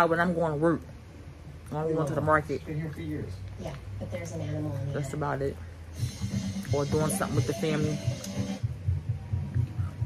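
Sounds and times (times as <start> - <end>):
music with pulsing bass: 6.0 - 10.0.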